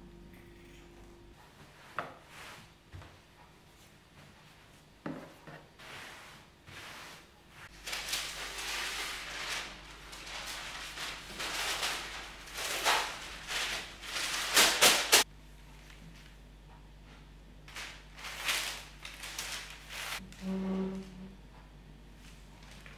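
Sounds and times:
cloth and paper rustling: 5.8s - 16.4s, 17.7s - 20.2s.

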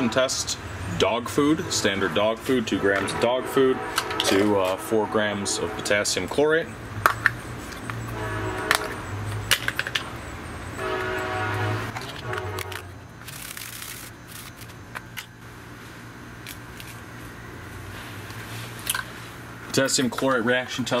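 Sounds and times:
horn blasts: 0.0s - 0.6s, 1.2s - 6.4s, 8.1s - 9.2s, 10.8s - 13.0s
powder pouring onto foil: 13.2s - 14.7s.

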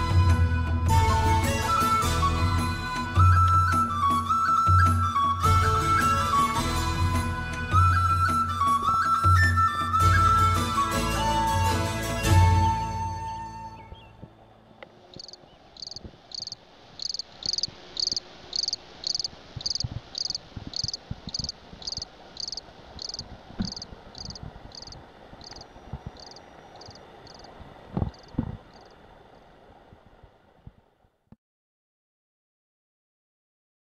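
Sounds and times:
cricket chirping: 15.1s - 29.0s.

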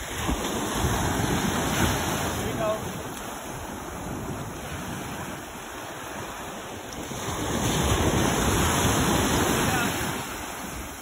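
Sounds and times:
surf washing over beach: 0.0s - 11.0s
wind buffeting microphone: 0.0s - 11.0s.

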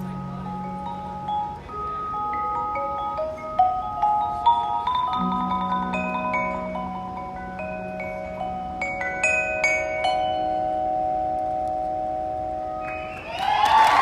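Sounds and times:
mallet keyboard notes: 0.0s - 14.0s
applause and cheering: 12.8s - 14.0s.

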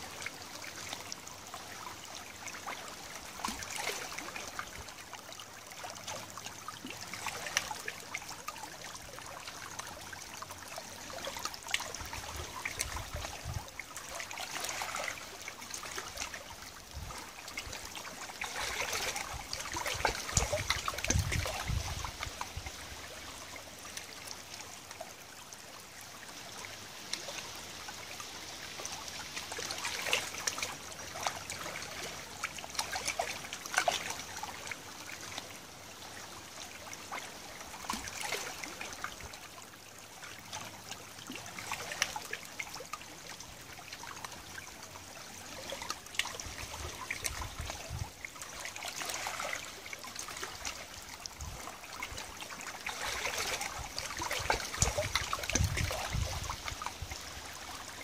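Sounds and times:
river water lapping on stones: 0.0s - 58.0s
small splashes and drips: 0.0s - 58.0s.

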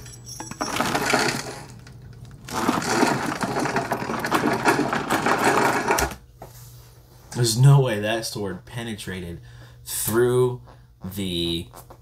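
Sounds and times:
rapid clattering rattle: 2.5s - 6.1s.

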